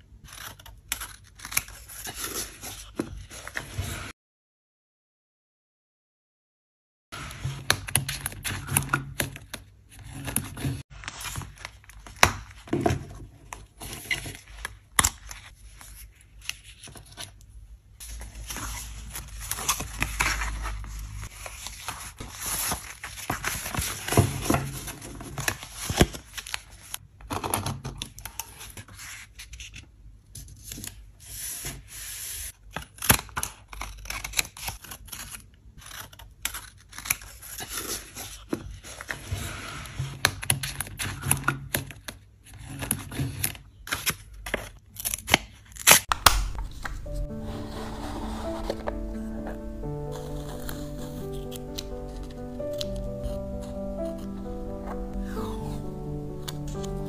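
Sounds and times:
paper rustling and tearing: 0.2 - 4.1, 18.0 - 27.0, 30.4 - 57.0.

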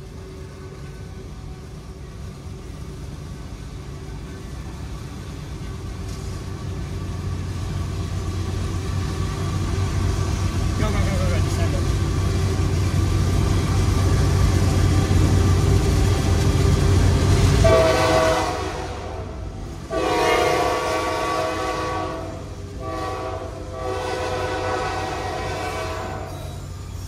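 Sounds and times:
freight train rumble: 0.0 - 27.0
locomotive air horn blasts: 17.6 - 19.3, 19.9 - 26.4.

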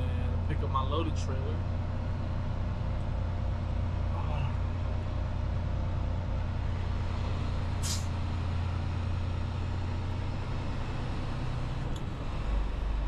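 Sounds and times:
diesel truck engine running: 0.0 - 13.0
air brake hiss: 7.8 - 8.2.

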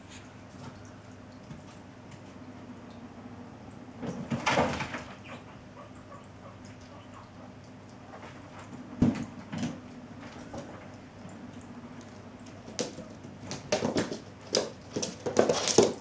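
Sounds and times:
steady low hum: 0.0 - 4.4
cat paws skidding on wooden floor: 12.6 - 16.0.

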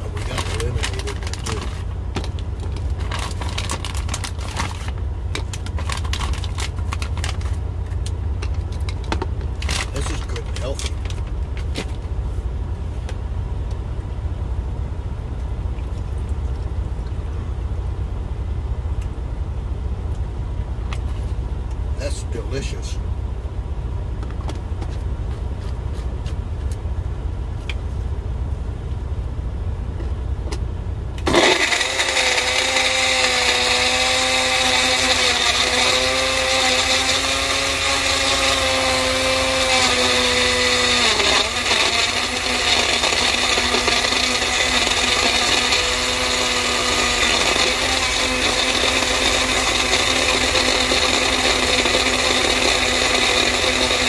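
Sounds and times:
blender motor whining: 0.0 - 1.9, 9.6 - 11.2, 31.2 - 54.0
low rumble: 0.0 - 31.3.

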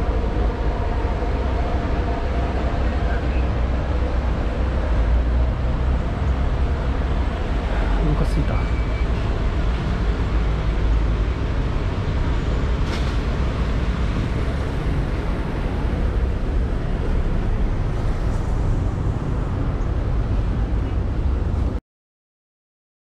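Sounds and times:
vehicle traffic rumble: 0.0 - 21.8.

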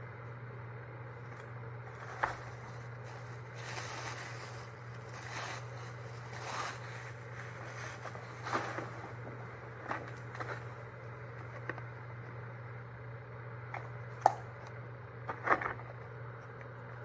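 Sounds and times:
steady low hum: 0.0 - 17.0
tissue paper and gift bag rustling: 1.9 - 10.8.

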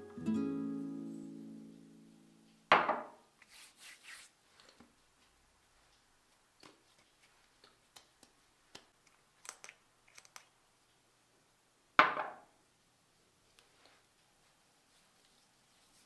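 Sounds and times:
bottle knocking on counter: 2.7 - 3.2, 12.0 - 12.4.

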